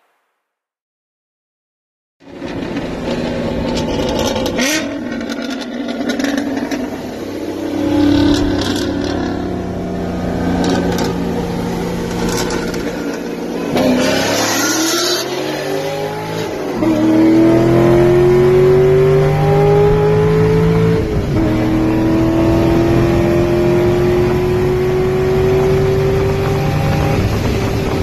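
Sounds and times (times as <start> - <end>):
car engine revving: 2.3 - 28.0
car engine running: 6.0 - 13.8.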